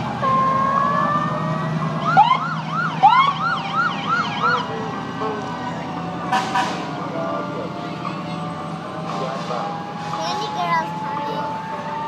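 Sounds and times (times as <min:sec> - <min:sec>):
fire truck siren: 0:00.0 - 0:12.0
truck engine rumble: 0:00.0 - 0:12.0.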